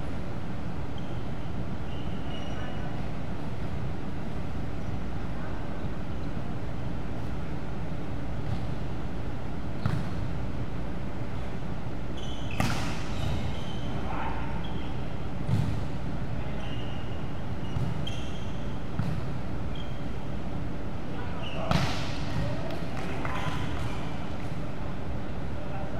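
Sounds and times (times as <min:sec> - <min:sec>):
steady background noise: 0:00.0 - 0:25.9
sneakers squeaking on court: 0:00.9 - 0:03.0, 0:12.1 - 0:15.8, 0:16.4 - 0:20.2, 0:21.2 - 0:22.5, 0:23.2 - 0:24.5.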